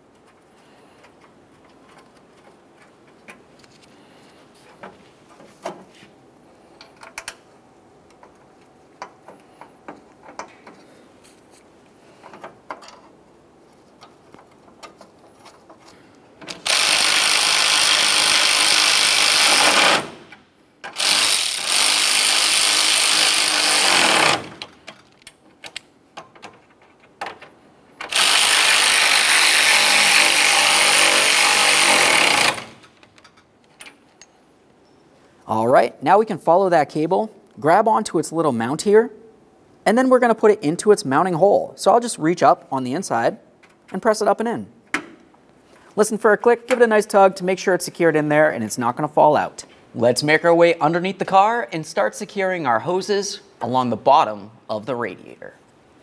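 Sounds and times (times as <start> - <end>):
small clicks of bolts: 6.8 - 7.4
power ratchet running: 16.6 - 20.2, 20.9 - 24.6, 28.1 - 32.8.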